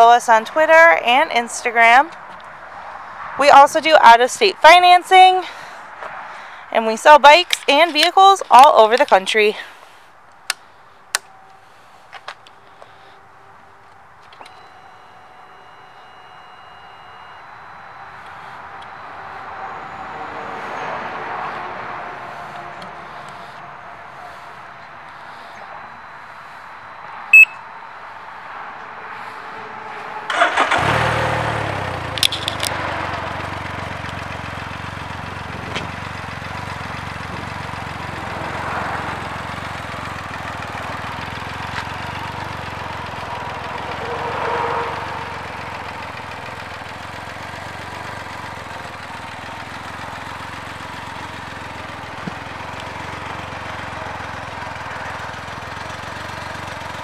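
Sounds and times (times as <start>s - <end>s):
engine cranking and idling: 6.4s - 27.4s, 29.2s - 57.0s.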